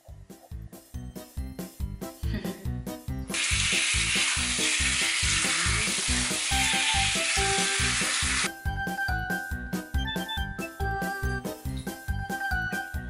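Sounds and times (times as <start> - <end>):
background music with steady beat: 0.0 - 3.7, 6.6 - 13.0
shower head spraying water: 3.3 - 8.5.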